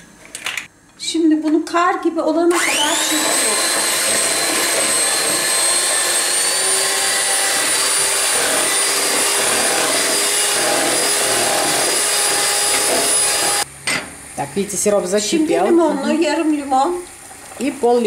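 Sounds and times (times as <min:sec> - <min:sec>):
electric hand mixer whine: 0:02.5 - 0:13.7
beaters churning in plastic bowl: 0:03.0 - 0:05.9.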